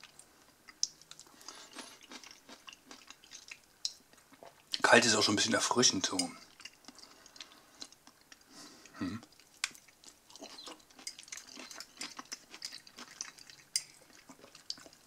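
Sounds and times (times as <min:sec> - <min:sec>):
fork stirring sauerkraut: 0:09.6 - 0:15.0.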